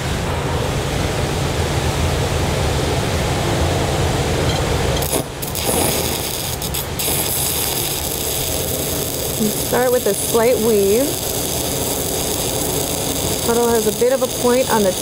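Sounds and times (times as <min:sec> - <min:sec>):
steady rushing noise: 0:00.0 - 0:15.0
welding arc crackling: 0:05.0 - 0:15.0.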